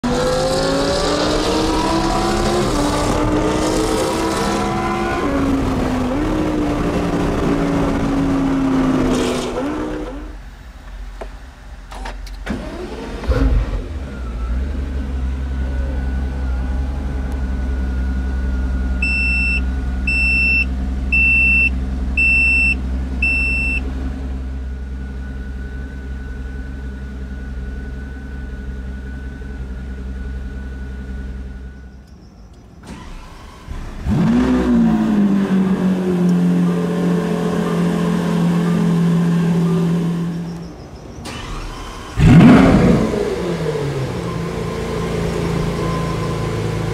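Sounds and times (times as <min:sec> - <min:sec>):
car engine starting and idling: 0:00.0 - 0:46.9
engine cranking: 0:40.5 - 0:43.4.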